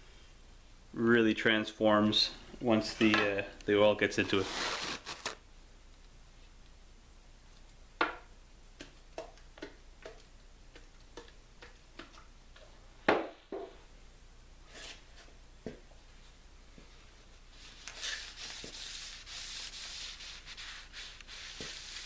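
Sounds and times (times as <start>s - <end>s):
paper towel rustle: 4.1s - 5.4s.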